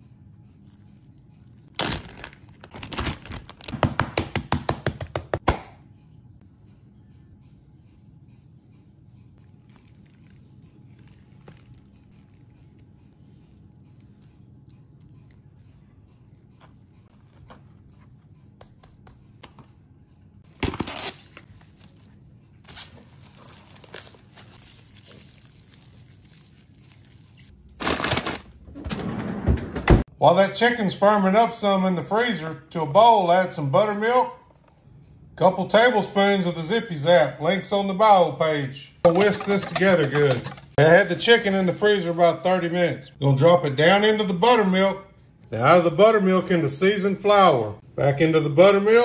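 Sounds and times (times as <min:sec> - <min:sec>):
cling wrap ripping: 0:01.7 - 0:03.7, 0:20.5 - 0:22.0, 0:22.7 - 0:28.6
plastic bag rustling: 0:01.7 - 0:03.8, 0:20.9 - 0:28.6, 0:39.0 - 0:43.0
cling wrap crinkling: 0:01.7 - 0:03.9, 0:09.5 - 0:12.5, 0:20.5 - 0:28.6, 0:39.0 - 0:43.1.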